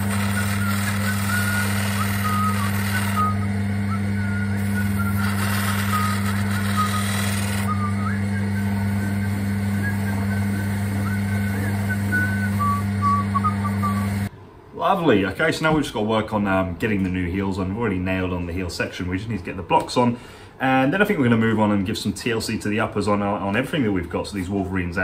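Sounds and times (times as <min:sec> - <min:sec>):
machine motor hum: 0:00.0 - 0:14.3.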